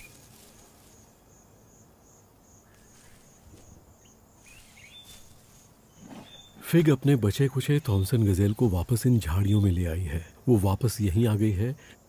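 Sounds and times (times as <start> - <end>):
high insect chirping: 0.0 - 12.0
short bird chirps: 5.9 - 6.6.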